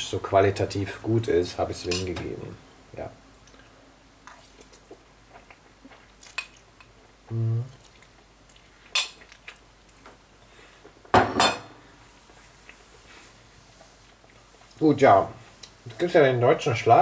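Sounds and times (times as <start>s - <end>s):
plate clattering on table: 11.1s - 11.7s.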